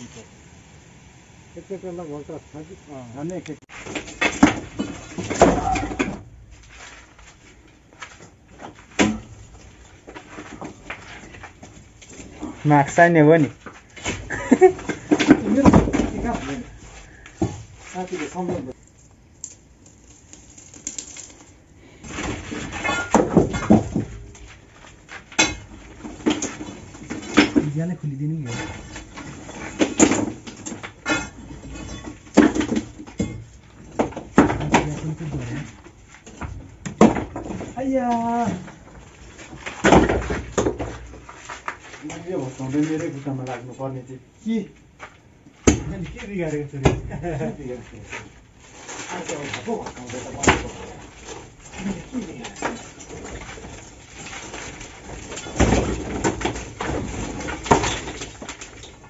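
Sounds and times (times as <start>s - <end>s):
stones rattling: 3.8s - 43.8s, 44.5s - 59.0s
crowbar knocking on stones: 13.0s - 16.7s, 22.2s - 24.5s, 25.3s - 27.8s, 28.5s - 35.5s, 36.3s - 37.8s, 39.5s - 41.0s, 45.6s - 46.2s, 51.7s - 58.6s.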